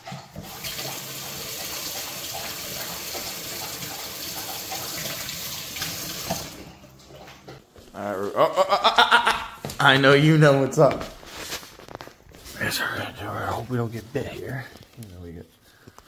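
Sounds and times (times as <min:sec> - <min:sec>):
faucet running into a sink: 0:00.4 - 0:07.2.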